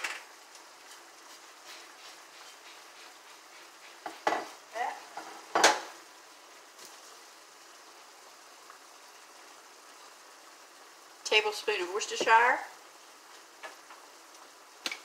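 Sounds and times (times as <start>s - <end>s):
meat and onions sizzling in a pan: 0.0s - 15.0s
kitchenware clattering and scraping: 4.0s - 5.9s.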